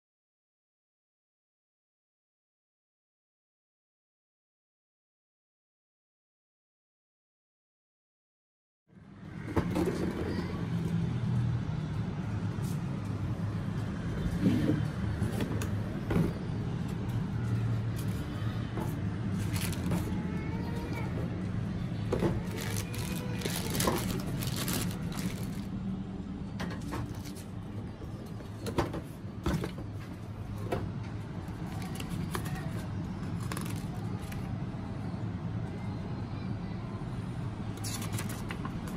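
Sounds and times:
low background hum: 0:08.9 - 0:38.9
cardboard and paper rustling: 0:19.3 - 0:20.2, 0:22.2 - 0:25.7, 0:33.4 - 0:34.4, 0:37.8 - 0:38.6.

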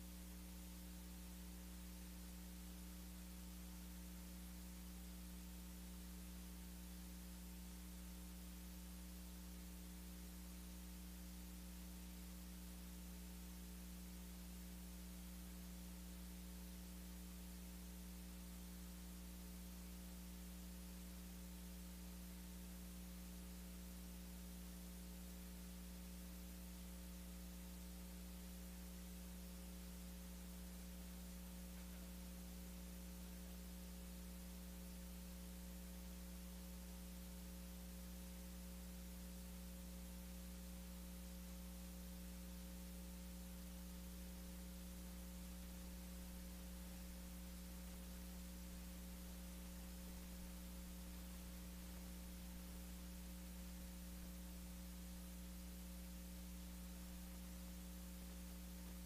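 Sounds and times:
electrical hum and hiss: 0:00.0 - 0:59.0.

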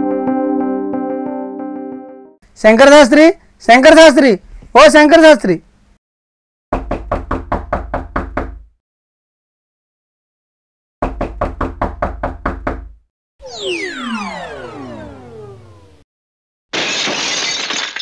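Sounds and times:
knuckles knocking on wooden door: 0:06.7 - 0:08.7, 0:11.0 - 0:13.0
falling whistle sound effect: 0:13.4 - 0:16.0.

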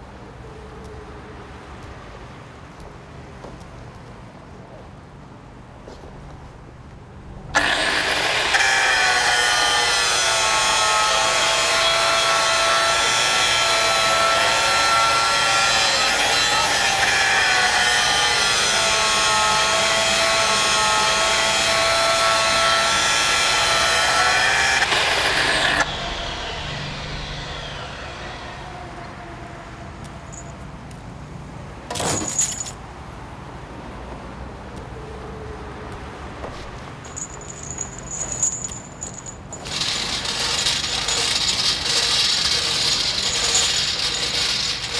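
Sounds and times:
electric grinder running: 0:07.6 - 0:18.5, 0:39.6 - 0:44.9
loud burst of noise: 0:24.8 - 0:29.4.

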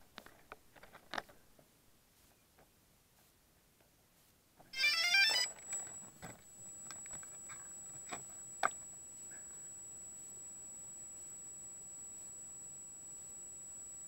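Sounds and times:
drone high whine: 0:04.8 - 0:14.0.

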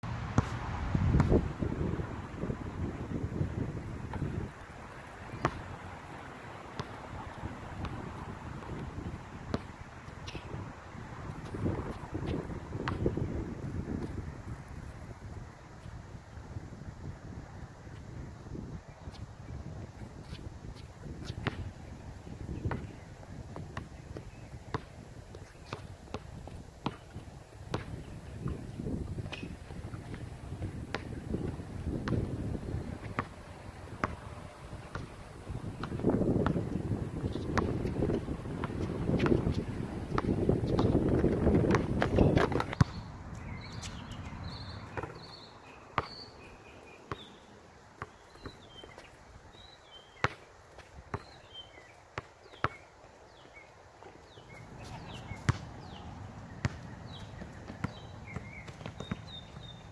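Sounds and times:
basketball bouncing on hard court: 0:05.4 - 0:05.7, 0:06.8 - 0:07.0, 0:09.5 - 0:09.7, 0:11.4 - 0:13.2, 0:21.2 - 0:21.7, 0:22.6 - 0:22.9, 0:23.6 - 0:28.6, 0:29.2 - 0:32.4, 0:33.0 - 0:33.4, 0:34.0 - 0:34.2, 0:34.9 - 0:35.1, 0:35.7 - 0:43.1, 0:46.0 - 0:46.2, 0:47.1 - 0:47.3, 0:54.9 - 0:56.0, 0:56.6 - 0:59.8
faint bird chirps: 0:42.2 - 0:50.4.

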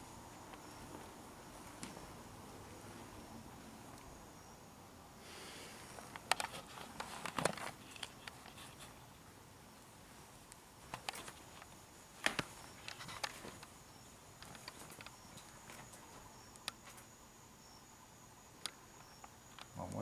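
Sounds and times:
faint high steady tone: 0:00.0 - 0:06.2.

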